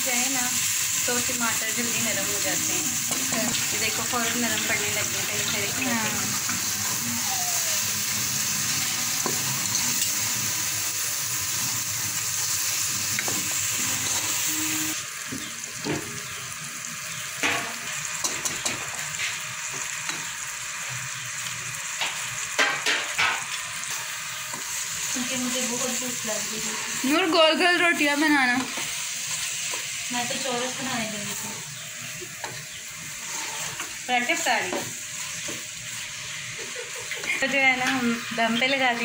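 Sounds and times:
masala sizzling in hot oil: 0.0s - 39.0s
wooden spoon scraping a pot: 33.2s - 34.0s.

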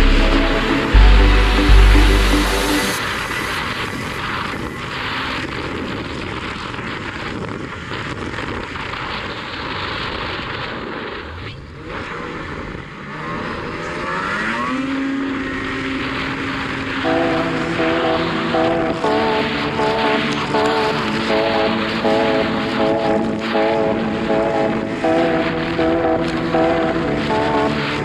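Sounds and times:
track and wind noise: 0.0s - 28.0s
snowmobile engine running: 12.2s - 28.0s.

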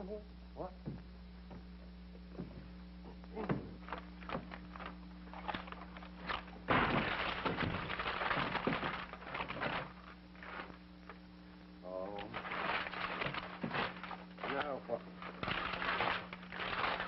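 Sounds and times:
knocks and thuds: 3.4s - 4.5s, 6.3s - 10.7s.

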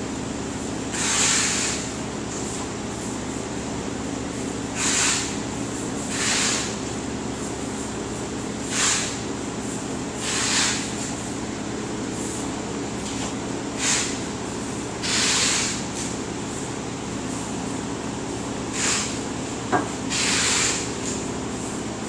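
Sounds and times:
short hisses: 18.8s - 19.2s
transfer press humming: 19.6s - 20.3s.

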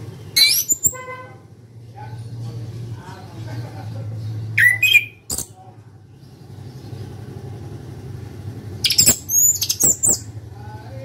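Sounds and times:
thrush whistling song: 4.6s - 5.3s, 8.8s - 10.3s.

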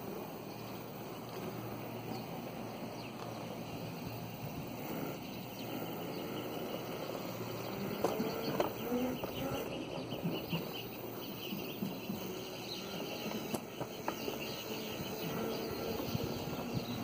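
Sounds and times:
go-kart rolling over concrete: 1.0s - 17.0s
sharp knocks and rattles: 8.0s - 14.6s.

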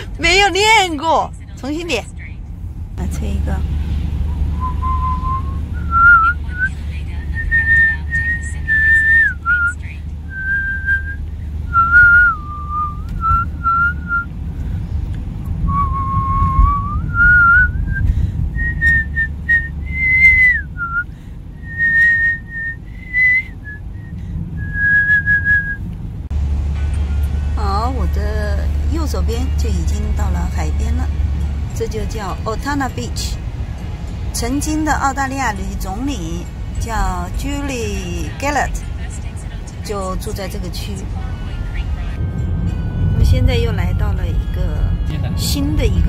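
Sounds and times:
car driving rumble from inside: 0.0s - 46.0s
person whistling a slow melody: 4.6s - 6.7s, 7.4s - 14.3s, 15.7s - 25.8s.

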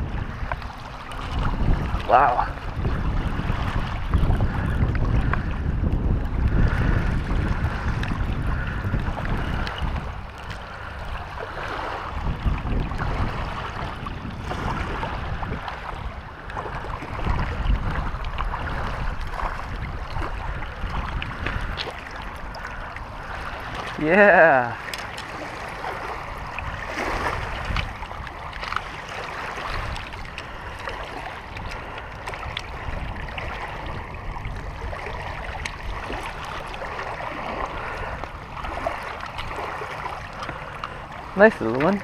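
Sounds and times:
small waves lapping on stones: 0.0s - 5.6s, 6.6s - 42.0s
wind buffeting microphone: 0.0s - 42.0s.

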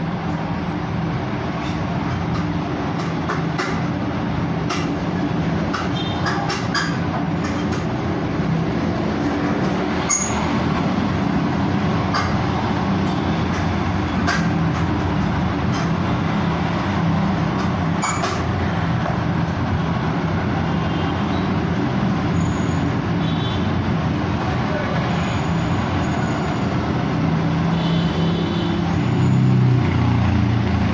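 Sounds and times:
traffic engines rumbling: 0.0s - 30.9s
motor scooters passing: 28.4s - 30.9s.

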